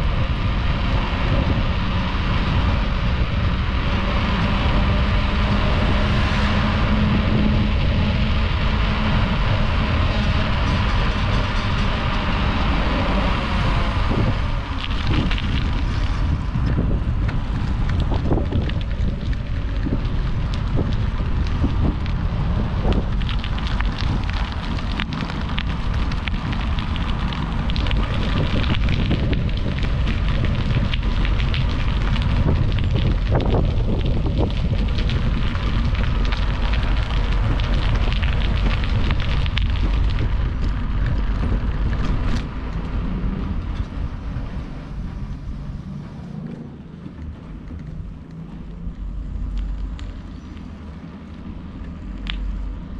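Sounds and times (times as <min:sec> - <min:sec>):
wind rushing over microphone: 0:00.0 - 0:52.9
light bicycle clicks: 0:14.0 - 0:43.0, 0:47.0 - 0:52.8.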